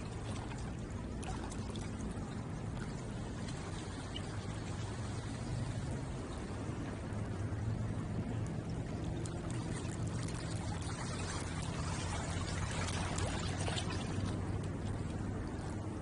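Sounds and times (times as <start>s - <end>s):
small splashes: 0.0s - 5.4s, 8.7s - 15.7s
steady low hum: 0.0s - 16.0s
water lapping at shore: 0.0s - 16.0s.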